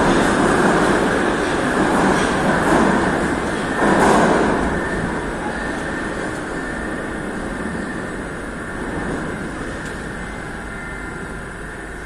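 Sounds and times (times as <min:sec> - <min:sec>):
metro train pulling out: 0:00.0 - 0:12.0.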